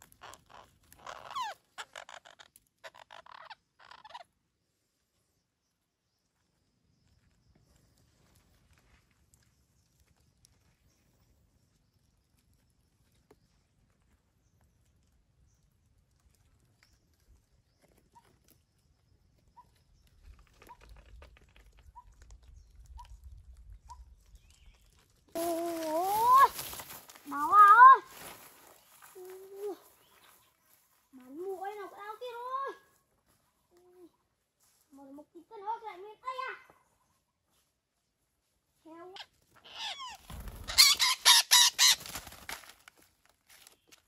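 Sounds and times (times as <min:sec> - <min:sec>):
parakeets squawking: 0:00.2 - 0:04.2, 0:39.7 - 0:42.0.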